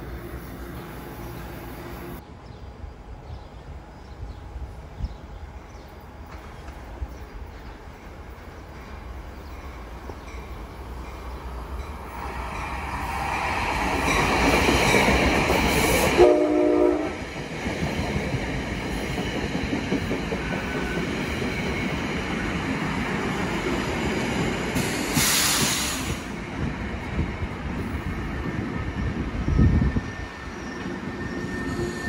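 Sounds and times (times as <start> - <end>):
train wheel and rail rumble: 0.0 - 32.0
train horn blast: 16.1 - 17.2
brief high hiss: 24.8 - 26.3.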